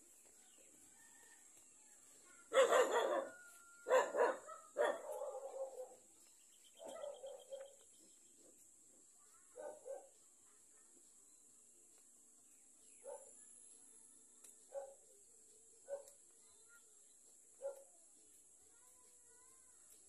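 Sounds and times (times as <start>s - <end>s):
dog barking: 2.4s - 6.1s, 6.8s - 7.8s, 9.5s - 10.2s, 13.0s - 13.4s, 14.7s - 15.1s, 15.8s - 16.2s, 17.6s - 17.9s.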